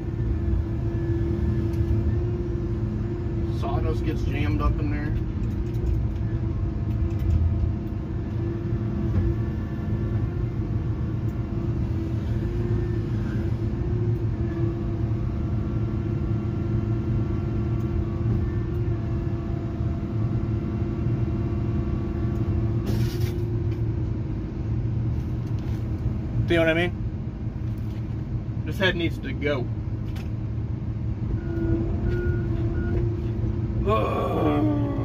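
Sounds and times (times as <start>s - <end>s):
brief hiss: 22.8s - 23.4s.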